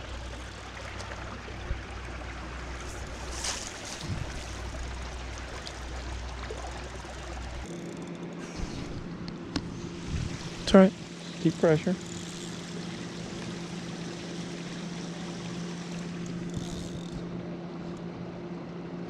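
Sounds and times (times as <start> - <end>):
lake water lapping: 0.0 - 7.7, 9.8 - 17.1
faint steady hum: 0.0 - 19.0
low rumble: 1.5 - 7.7.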